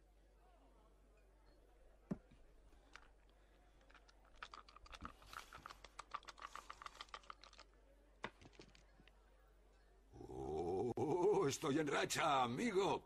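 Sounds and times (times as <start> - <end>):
dice rattling in a hand: 3.8 - 7.7.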